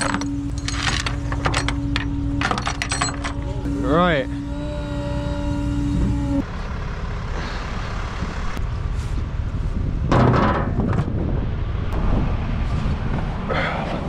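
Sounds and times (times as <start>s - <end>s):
steady whine: 0.0s - 6.6s
truck engine rumbling: 0.0s - 14.0s.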